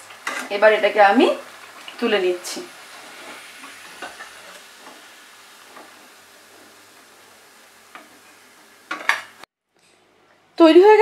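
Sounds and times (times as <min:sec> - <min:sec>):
oil sizzling in deep fryer: 0:00.0 - 0:09.5.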